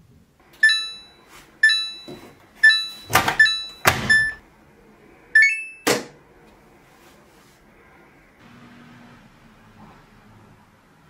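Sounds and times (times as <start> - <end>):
washing machine panel beeps: 0.6 - 4.4, 5.4 - 6.0.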